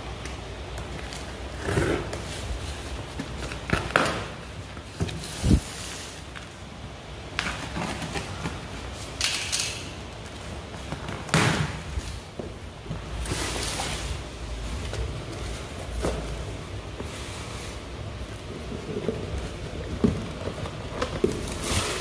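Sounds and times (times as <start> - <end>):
cardboard flaps scraping and rustling: 0.9 - 6.7, 7.4 - 9.2, 10.2 - 22.0.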